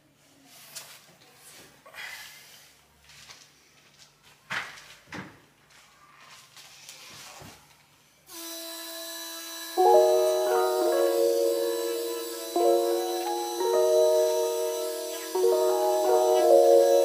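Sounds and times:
music with sustained notes: 0:09.8 - 0:17.0.

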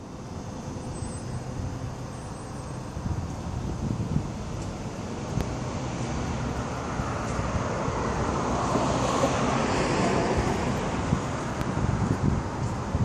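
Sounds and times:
car tyre and road noise: 0:00.0 - 0:13.0
wind rumbling on microphone: 0:02.8 - 0:13.0.

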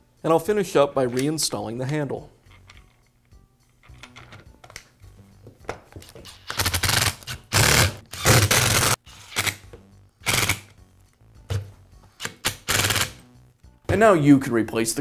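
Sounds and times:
power screwdriver bursts: 0:06.5 - 0:09.6, 0:10.2 - 0:10.7, 0:12.2 - 0:13.2.

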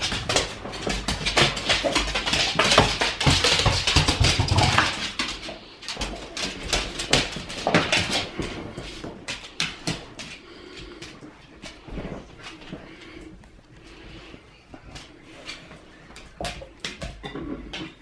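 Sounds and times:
dog claws clicking on wood floor: 0:00.0 - 0:13.3.

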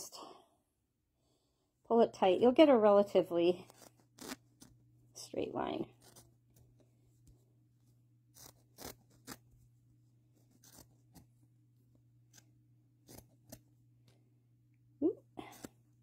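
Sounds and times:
scissors snipping fabric: 0:08.3 - 0:09.5, 0:10.4 - 0:11.3, 0:12.2 - 0:13.6.

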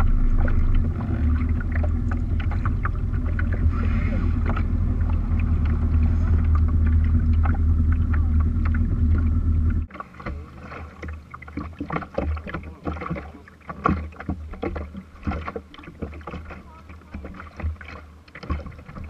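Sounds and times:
boat motor humming: 0:00.0 - 0:19.0
knocks and taps on boat deck: 0:11.6 - 0:19.0
faint voices: 0:15.4 - 0:17.8.

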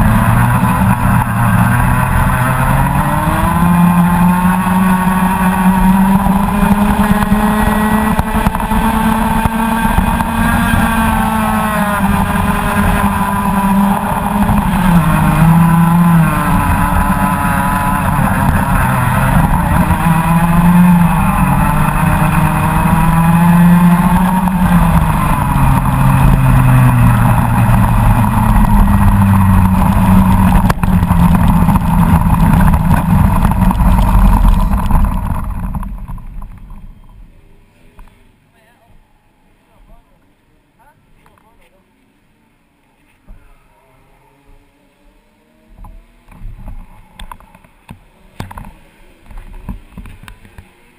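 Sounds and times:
two-stroke kart engine revving: 0:00.0 - 0:37.0.

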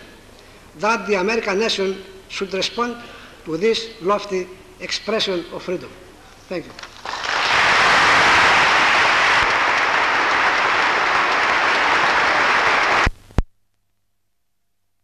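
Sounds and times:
audience applauding: 0:06.9 - 0:13.1.

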